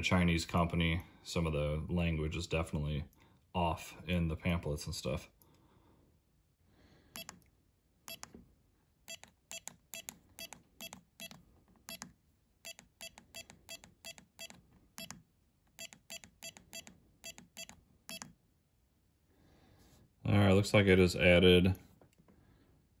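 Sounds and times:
keypad short beeps: 7.2s - 7.4s, 8.1s - 8.3s, 9.1s - 15.2s, 15.8s - 18.4s.

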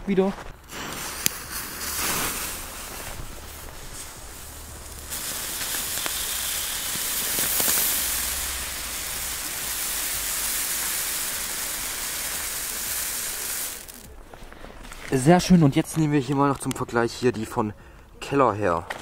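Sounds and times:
small crackles: 0.3s - 17.3s
firework fountain spark hiss: 0.6s - 14.2s.

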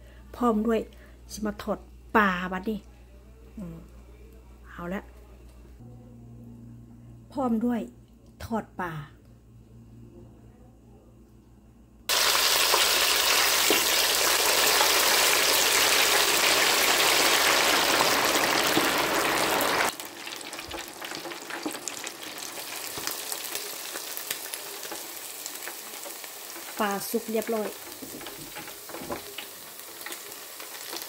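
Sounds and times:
fish sizzling in hot oil: 12.1s - 31.0s.

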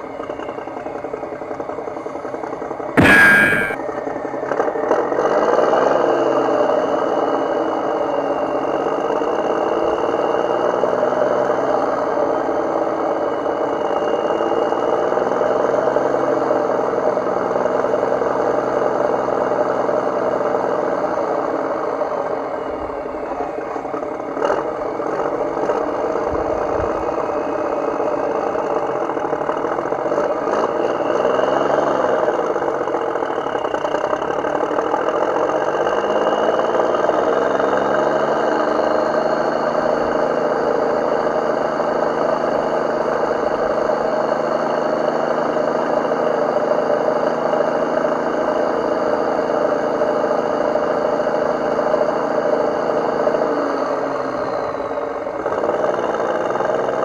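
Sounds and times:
short knock: 3.0s - 3.8s.

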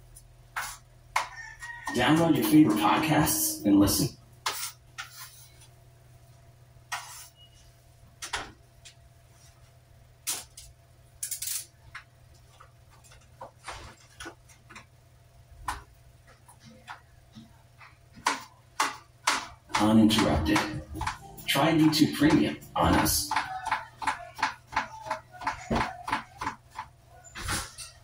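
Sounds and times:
low hum: 19.8s - 23.3s.

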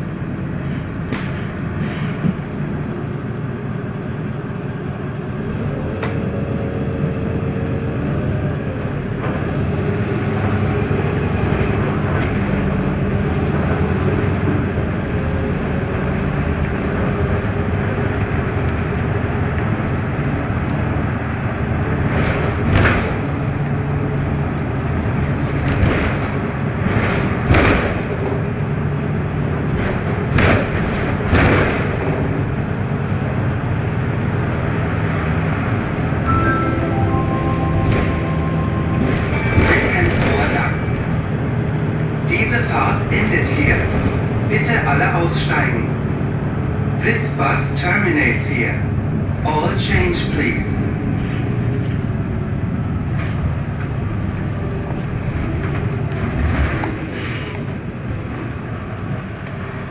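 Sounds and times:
bus engine and road rumble: 0.0s - 59.9s
sharp knocks and rattles: 29.6s - 32.4s.

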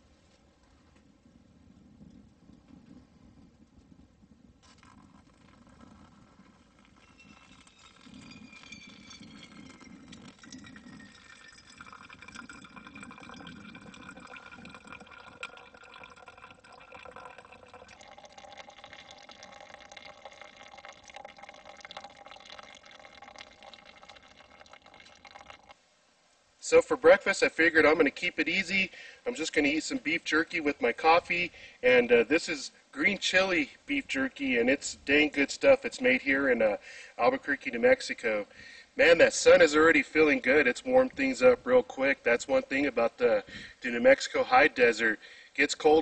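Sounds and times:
coffee trickling and dripping: 4.5s - 25.8s, 37.5s - 45.0s
hot water pouring onto coffee grounds: 4.6s - 25.8s.

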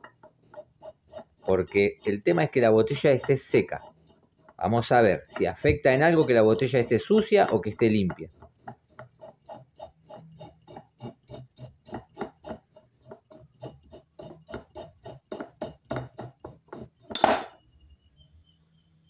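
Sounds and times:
glass bottle clinking: 17.1s - 17.6s.

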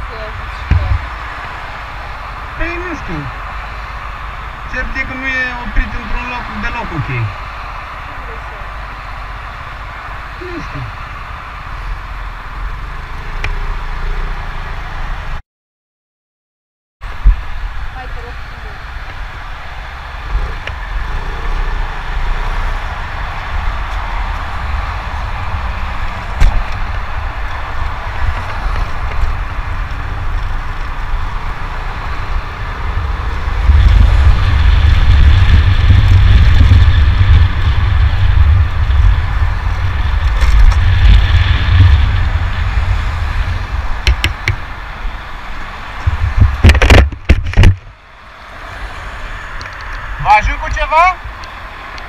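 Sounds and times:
motorcycle engine rumble: 0.0s - 15.4s, 17.0s - 52.0s
wind rushing over microphone: 17.0s - 52.0s
sharp knocks: 44.0s - 44.6s.

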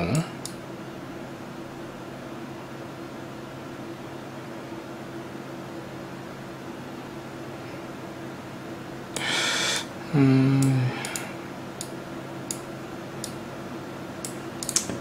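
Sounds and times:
man humming: 0.0s - 0.3s, 9.2s - 11.3s
faint computer hum: 0.0s - 15.0s
man breathing out: 9.2s - 11.4s
computer mouse clicks: 14.2s - 15.0s.

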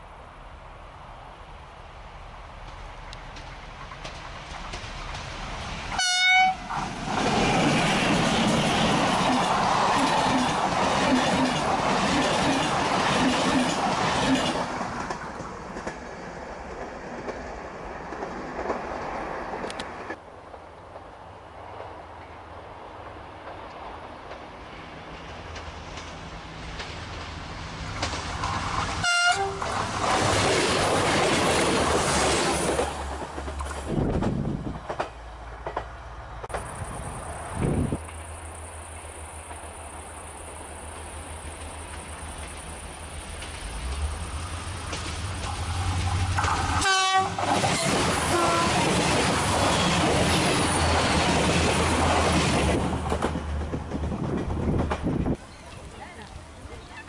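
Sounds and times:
diesel railcar engine hum: 0.0s - 57.0s
train wheel noise passing: 1.6s - 57.0s
train horn blast: 6.0s - 6.7s, 29.0s - 29.7s, 46.8s - 48.8s.

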